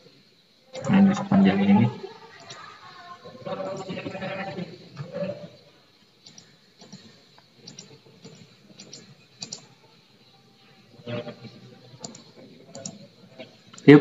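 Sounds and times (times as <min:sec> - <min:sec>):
keyboard and mouse clicks: 0:06.2 - 0:09.7, 0:12.0 - 0:13.0.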